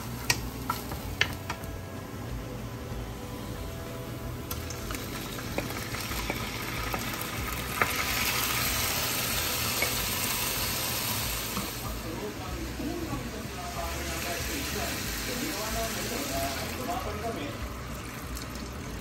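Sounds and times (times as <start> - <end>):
beef sizzling in hot oil: 4.4 - 19.0.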